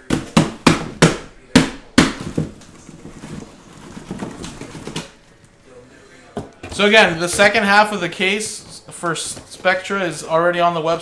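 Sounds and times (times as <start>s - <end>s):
knocks and thuds on cardboard box: 0.0s - 5.1s
rustling and shuffling: 2.2s - 11.0s.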